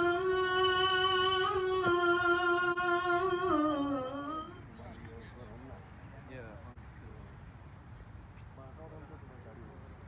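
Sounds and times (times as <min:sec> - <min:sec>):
person singing a long note: 0:00.0 - 0:04.6.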